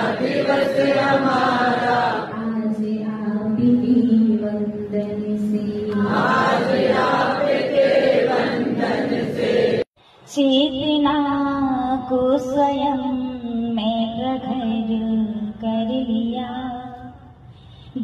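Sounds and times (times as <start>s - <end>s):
woman chanting a hymn: 2.2s - 6.2s.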